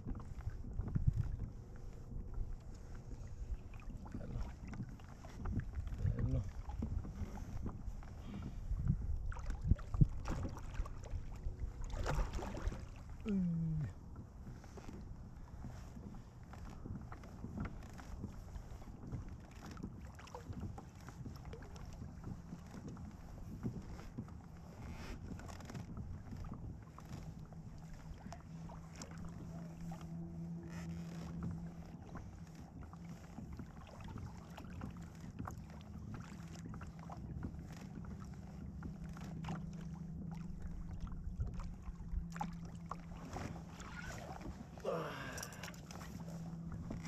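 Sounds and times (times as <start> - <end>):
clicks and knocks from hull: 0.0 - 13.2, 14.2 - 24.6
kayak drive humming: 0.0 - 47.0.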